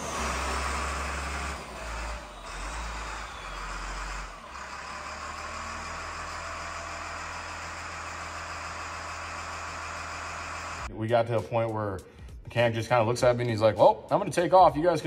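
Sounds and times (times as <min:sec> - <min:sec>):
diesel engine revving: 0:00.0 - 0:10.9.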